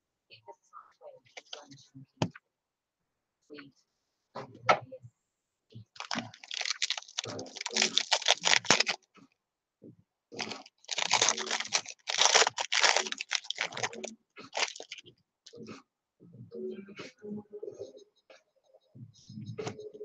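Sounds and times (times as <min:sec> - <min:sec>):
foil wrapper crinkling and tearing: 0:06.0 - 0:09.0, 0:10.4 - 0:15.0.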